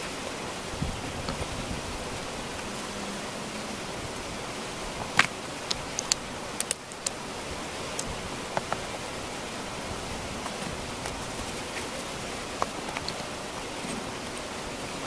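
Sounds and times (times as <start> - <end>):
steady hiss: 0.0 - 15.0
stones knocking together: 5.1 - 7.1.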